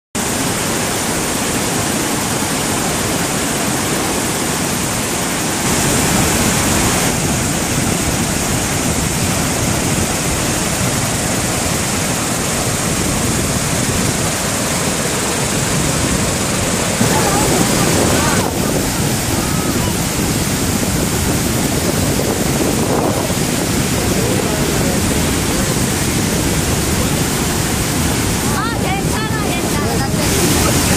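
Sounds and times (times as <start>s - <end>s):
white water rushing roar: 0.2s - 30.9s.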